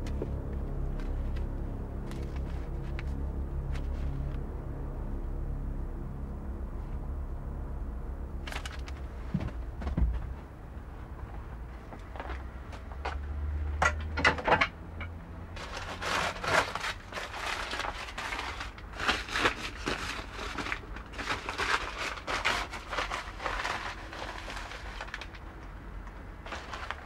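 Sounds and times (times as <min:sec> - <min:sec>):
plastic bag crinkling and rustling: 0:08.5 - 0:09.1, 0:15.6 - 0:27.0.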